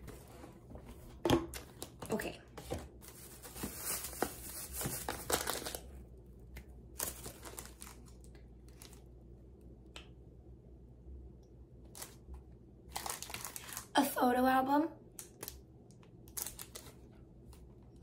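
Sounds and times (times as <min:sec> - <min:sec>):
packaging crinkling and rustling: 0:01.5 - 0:09.1, 0:12.9 - 0:14.0, 0:15.2 - 0:17.7.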